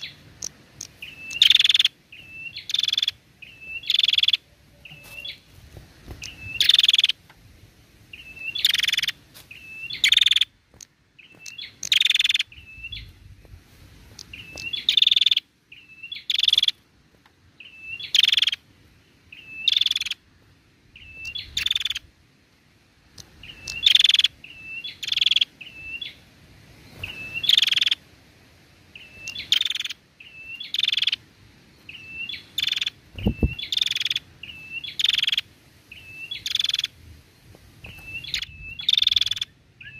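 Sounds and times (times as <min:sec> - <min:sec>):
bird thin chirps: 0:00.0 - 0:05.4, 0:08.2 - 0:10.5, 0:11.2 - 0:13.1, 0:14.2 - 0:16.8, 0:23.2 - 0:26.1, 0:31.9 - 0:36.9, 0:37.8 - 0:39.9.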